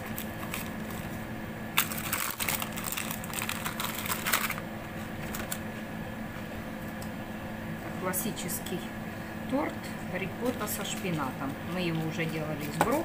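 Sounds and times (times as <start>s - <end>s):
baking paper crinkling: 0.0s - 4.6s, 5.2s - 5.6s.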